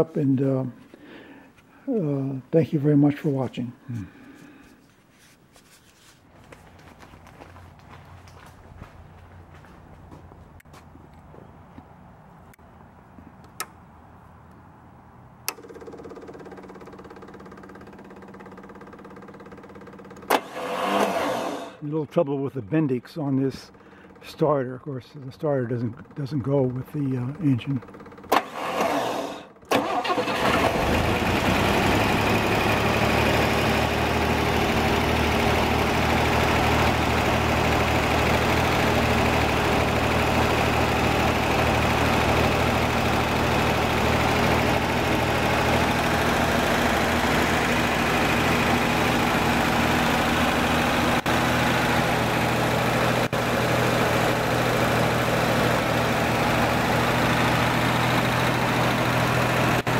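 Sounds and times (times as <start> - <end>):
car engine starting and idling: 15.2 - 21.8, 23.5 - 59.9.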